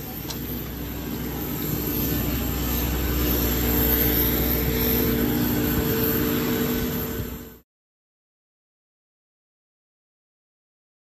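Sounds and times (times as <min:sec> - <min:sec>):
jet aircraft whine: 0:00.0 - 0:07.6.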